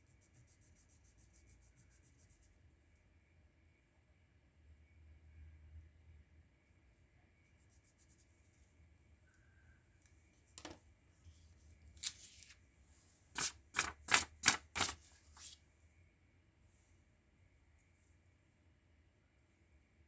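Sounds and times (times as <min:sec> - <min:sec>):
sharp clicks of drawing tools: 0:13.4 - 0:15.0.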